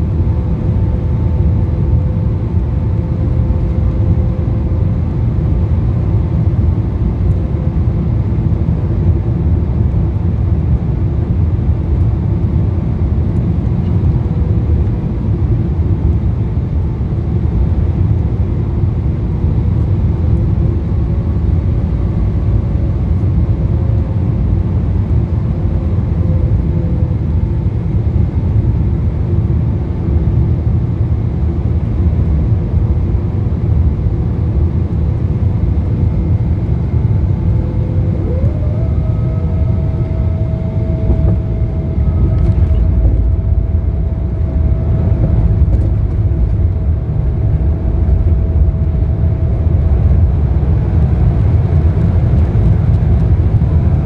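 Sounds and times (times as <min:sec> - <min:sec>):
faint steady whine: 0:00.0 - 0:54.0
jet engines running: 0:00.0 - 0:54.0.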